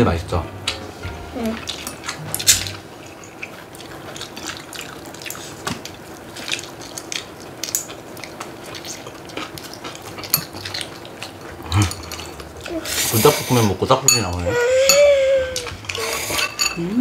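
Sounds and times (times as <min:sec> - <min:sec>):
noodles slurped and chewed: 0:01.5 - 0:14.0, 0:15.5 - 0:17.0
chopsticks clicking on dishes: 0:10.1 - 0:12.5.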